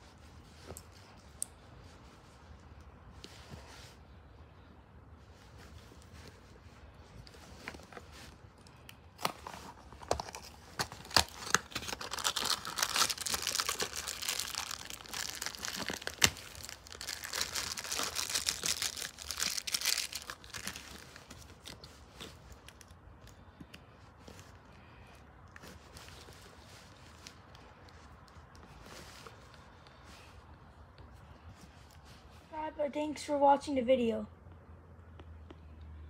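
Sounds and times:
wrapper crinkling: 7.2s - 23.0s.

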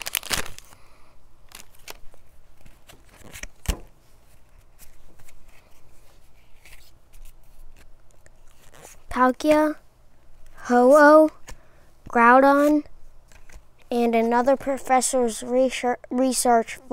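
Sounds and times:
trading cards flipped through: 0.0s - 0.8s, 1.5s - 9.1s, 12.6s - 13.9s
soft paper rustles: 1.5s - 9.1s, 12.6s - 14.9s.

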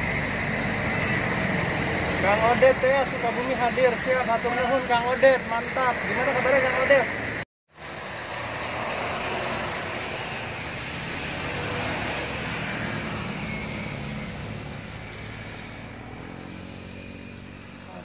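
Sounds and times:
coach engine passing: 0.0s - 18.0s
tyres hissing on wet road: 5.8s - 16.0s.

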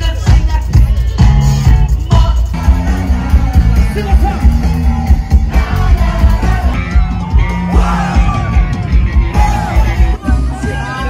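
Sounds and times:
live band music: 0.0s - 11.0s
strong bass beat: 0.0s - 11.0s
crowd yelling: 2.6s - 11.0s.

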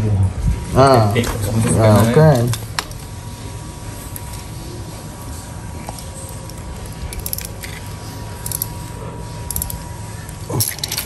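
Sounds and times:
steady low hum: 0.0s - 11.0s
wire clicks and rustles: 5.2s - 11.0s.

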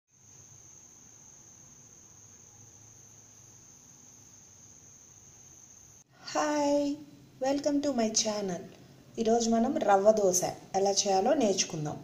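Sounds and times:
cricket trill: 0.1s - 6.1s.

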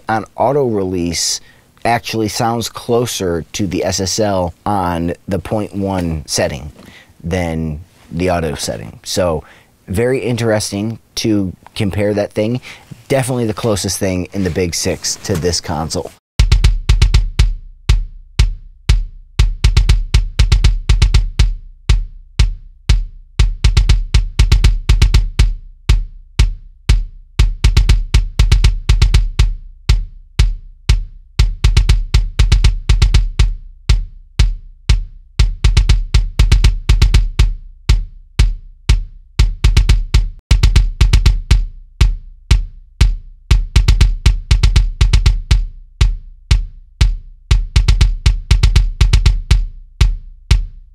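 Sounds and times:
kick drum hits: 16.4s - 50.9s.

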